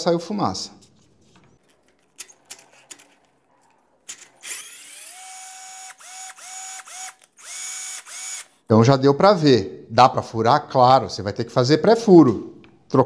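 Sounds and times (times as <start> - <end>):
cordless drill motor whine: 4.4 - 8.6.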